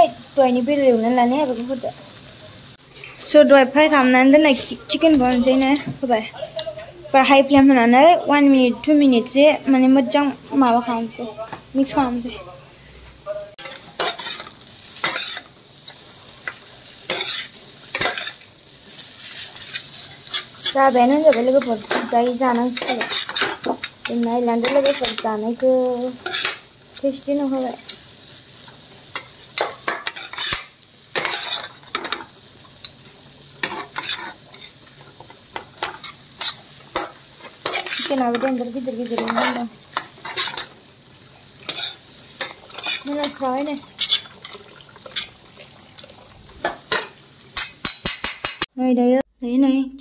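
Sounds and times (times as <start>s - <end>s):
steady sizzle: 0.0s - 48.7s
spatula scraping and tossing noodles: 13.6s - 25.4s, 29.2s - 32.3s, 33.6s - 40.8s, 41.6s - 45.4s.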